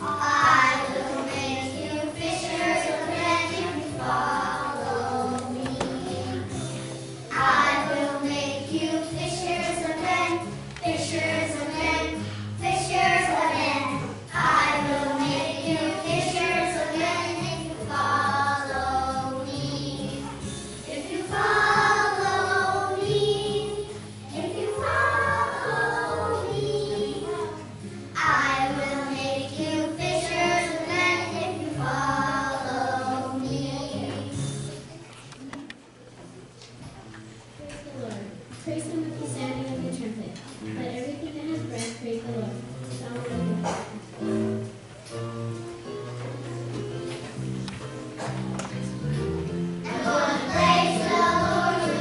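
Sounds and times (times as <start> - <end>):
children singing: 0.0 - 6.6, 7.3 - 27.6, 28.2 - 34.6, 49.8 - 52.0
instrumental accompaniment with bass: 42.6 - 52.0.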